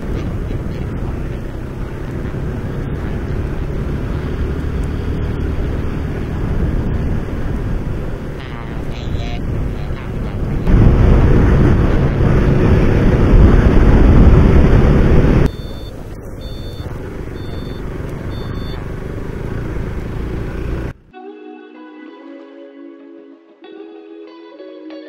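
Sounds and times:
motorcycle engine and wind rush: 0.0 - 21.0
faint high beeps: 15.5 - 18.9
guitar music: 20.6 - 25.0.

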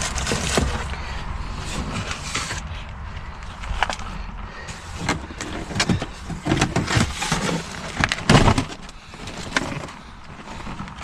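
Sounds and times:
low rumble: 0.0 - 6.4.

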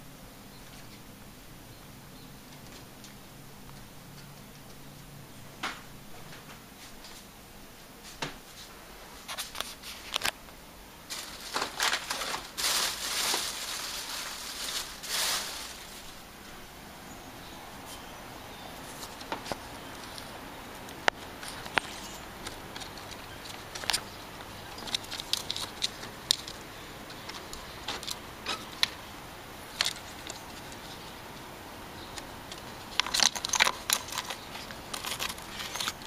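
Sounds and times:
rustling: 11.0 - 36.0
scratching at a screened window: 18.6 - 36.0.

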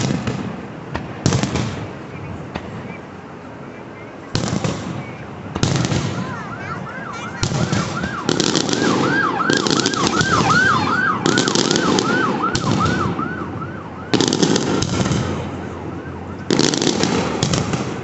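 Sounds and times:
fireworks crackling volleys: 0.0 - 3.2, 4.2 - 18.0
siren yelping: 4.9 - 18.0.

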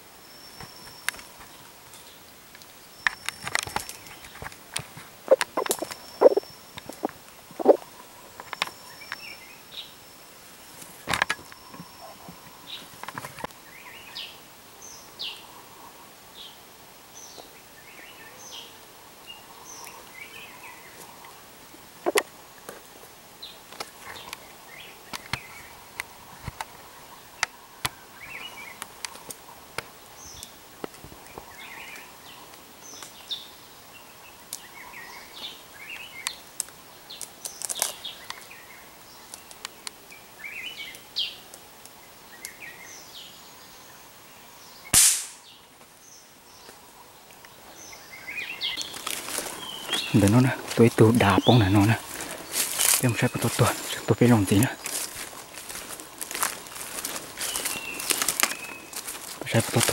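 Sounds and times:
forest birds chirping: 0.0 - 59.9
sharp clicks: 5.3 - 7.8
gunshot: 45.0 - 45.4.

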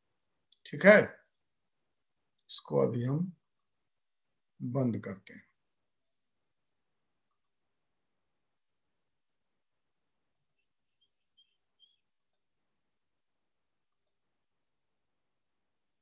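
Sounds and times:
faint short high chirps: 10.9 - 12.1.

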